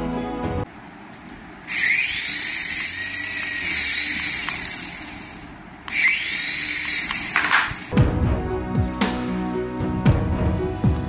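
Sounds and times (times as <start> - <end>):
toy helicopter motors whining: 1.7 - 7.9.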